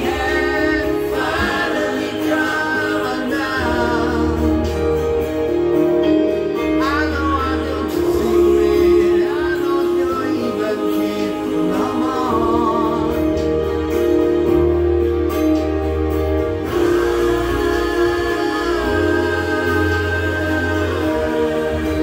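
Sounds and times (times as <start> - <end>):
man singing into microphone: 0.0 - 4.9, 6.6 - 13.8, 16.7 - 22.0
instrumental accompaniment with bass: 0.0 - 22.0.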